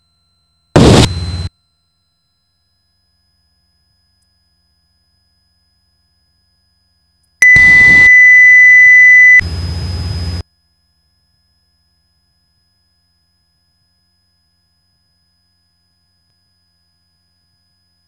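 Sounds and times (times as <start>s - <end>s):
high alert beep: 7.4s - 9.4s
soft high tone: 7.4s - 9.4s.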